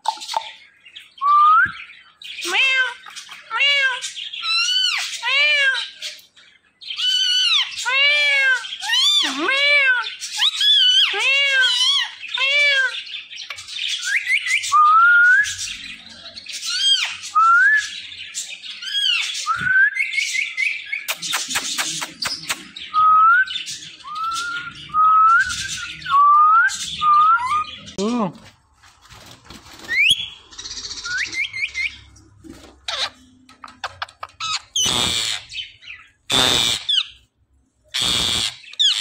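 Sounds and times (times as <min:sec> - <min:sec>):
parakeet calling and whistling: 0:06.8 - 0:15.8, 0:16.5 - 0:28.0, 0:29.8 - 0:32.2, 0:32.8 - 0:37.3, 0:37.9 - 0:39.0.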